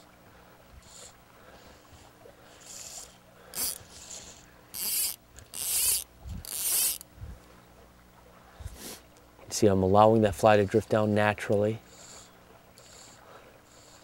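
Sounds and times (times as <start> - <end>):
fly reel buzzing: 1.9 - 7.1, 11.9 - 14.0.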